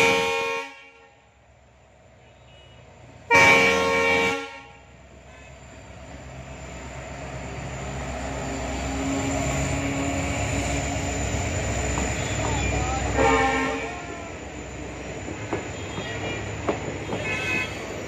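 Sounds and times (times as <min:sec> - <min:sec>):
locomotive horn blast: 0:00.0 - 0:01.2, 0:02.2 - 0:05.6, 0:12.2 - 0:14.2, 0:15.7 - 0:18.0
diesel locomotive engine: 0:00.0 - 0:18.0.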